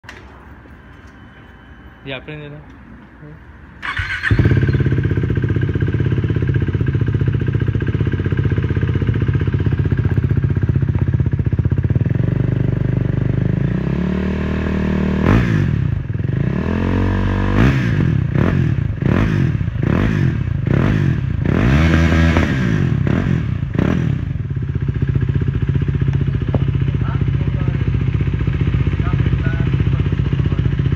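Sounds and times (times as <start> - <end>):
motorcycle engine revving: 3.8 - 30.9.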